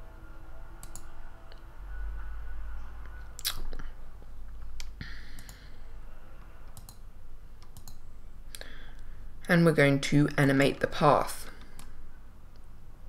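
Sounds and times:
low steady hum: 0:00.0 - 0:13.0
mouse and keyboard clicks: 0:06.7 - 0:07.0, 0:07.6 - 0:08.0.

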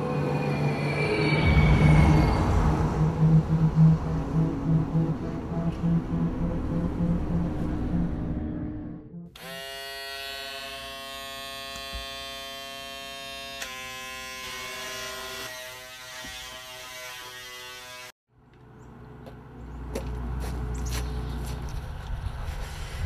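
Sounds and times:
low outdoor rumble: 0:01.5 - 0:09.1
electric shaver buzzing: 0:09.4 - 0:18.1.

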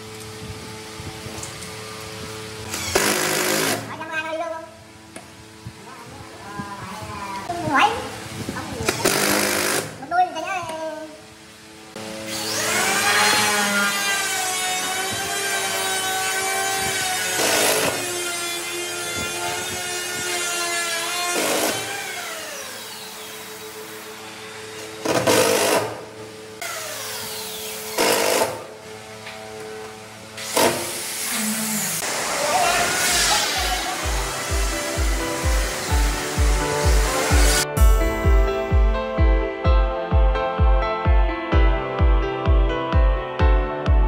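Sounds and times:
cordless drill driving screws: 0:02.7 - 0:03.9, 0:08.9 - 0:10.0, 0:12.3 - 0:24.0, 0:24.7 - 0:26.0, 0:26.6 - 0:28.7, 0:30.4 - 0:31.3.

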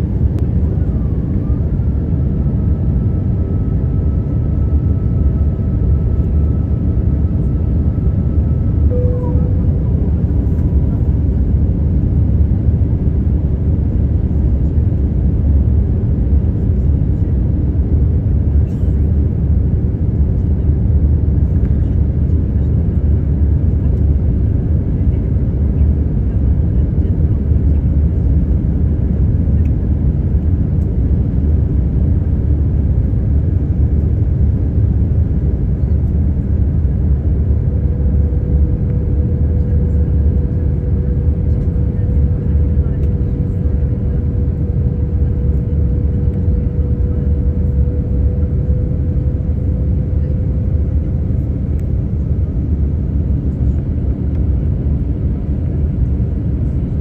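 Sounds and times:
jet engines and airflow rumble: 0:00.0 - 0:57.0
faint steady hum: 0:03.4 - 0:11.7.

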